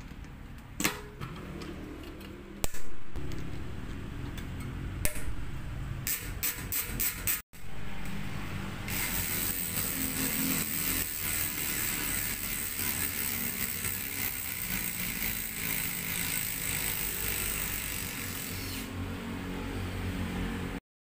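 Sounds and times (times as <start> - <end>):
bicycle hub ratchet clicking: 6.0 - 7.4, 8.9 - 18.9.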